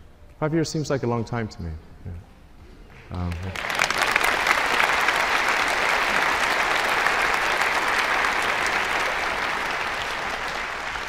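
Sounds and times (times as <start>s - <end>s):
large audience applauding: 2.9s - 11.0s.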